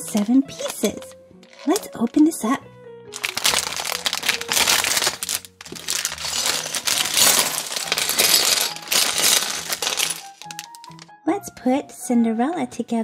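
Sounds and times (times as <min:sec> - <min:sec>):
plastic bag tearing and crinkling: 0:00.0 - 0:02.0, 0:03.1 - 0:11.0.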